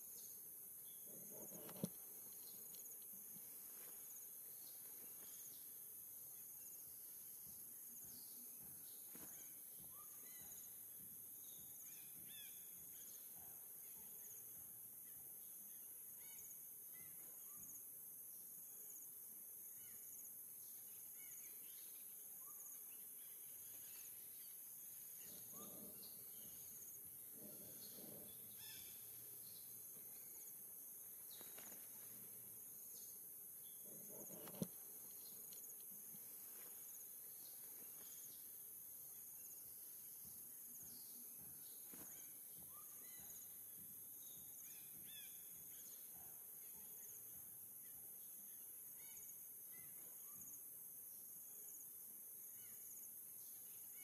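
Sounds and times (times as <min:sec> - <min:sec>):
faint low noises: 0:00.0 - 0:54.0.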